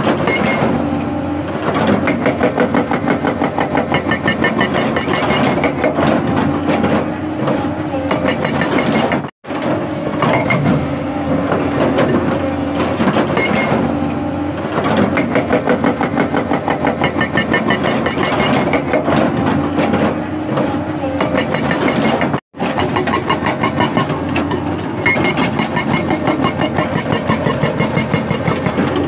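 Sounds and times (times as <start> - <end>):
excavator engine running: 0.0 - 29.0
hydraulic breaker hammering rock: 1.6 - 29.0.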